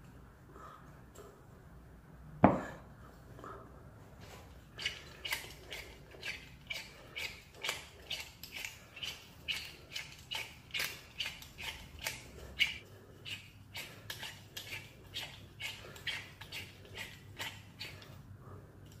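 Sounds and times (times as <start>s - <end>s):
metal tool scraping faucet: 4.7s - 18.2s.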